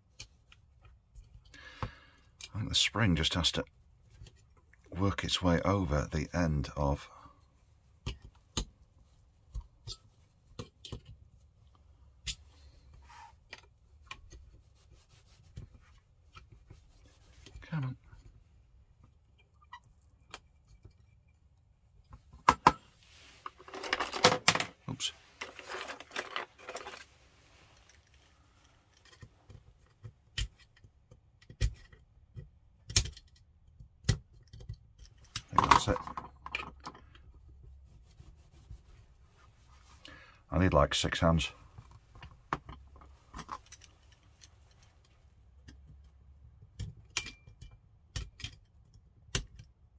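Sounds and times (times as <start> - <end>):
screwdriver clicking and scraping metal: 25.4 - 27.1, 46.8 - 49.7
tool clicking on plastic and metal: 29.1 - 35.9.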